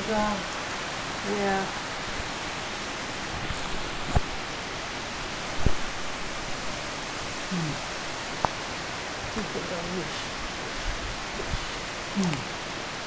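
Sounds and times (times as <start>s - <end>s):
storm rain and wind: 0.0s - 13.0s.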